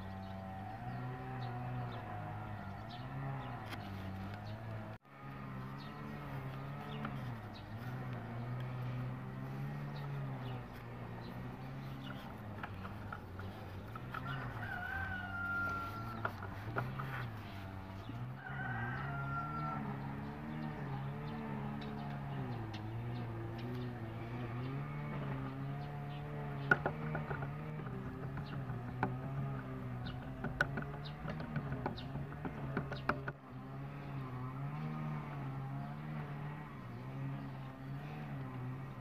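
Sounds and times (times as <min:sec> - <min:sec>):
rooster crowing: 0:00.0 - 0:04.9, 0:13.4 - 0:21.6
low droning hum: 0:00.0 - 0:39.0.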